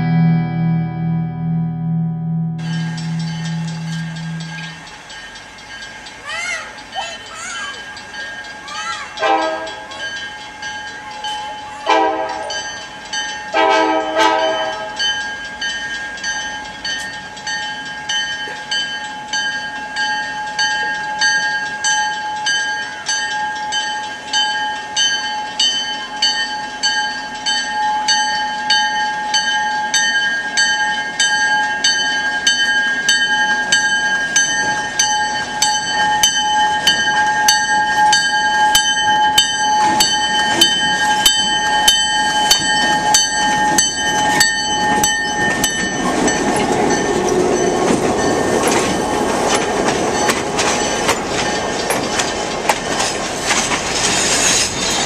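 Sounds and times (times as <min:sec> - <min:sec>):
locomotive bell ringing: 0:02.6 - 0:55.0
locomotive air horn blasts: 0:09.2 - 0:09.8, 0:11.9 - 0:12.5, 0:13.6 - 0:15.0.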